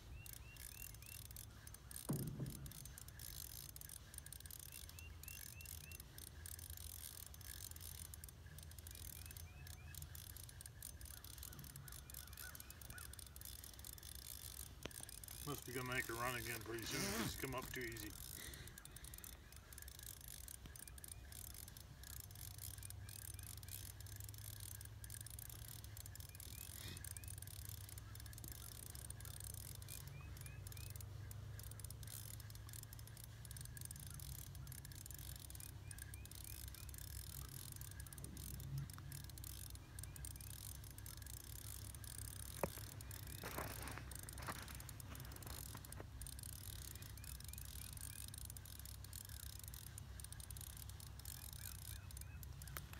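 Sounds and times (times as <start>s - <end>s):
fishing reel clicking: 0.0s - 52.9s.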